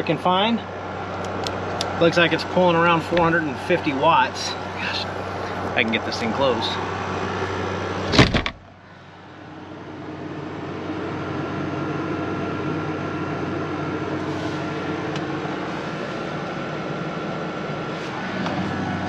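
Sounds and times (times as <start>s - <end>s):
air conditioner humming: 0.0s - 19.0s
window shutting with a bang: 8.0s - 8.6s.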